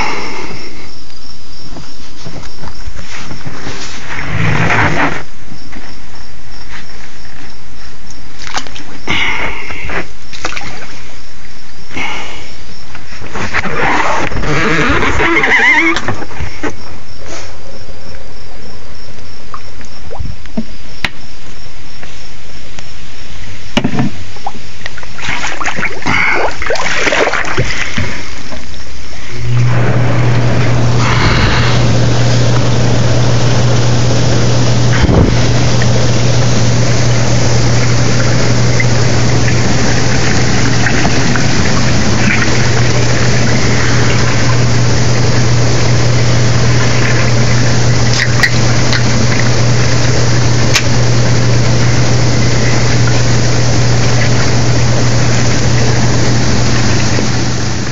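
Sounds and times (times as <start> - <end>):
jet pump humming: 0.0 - 57.9
water churning and bubbling: 23.6 - 57.9.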